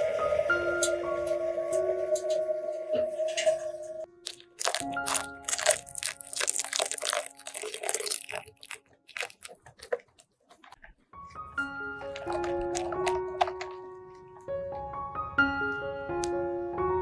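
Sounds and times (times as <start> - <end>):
liquid pouring: 4.2 - 10.9.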